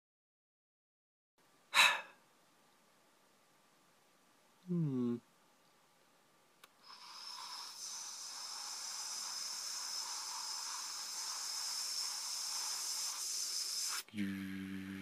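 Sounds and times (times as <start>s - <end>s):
steady hiss: 6.6s - 15.0s.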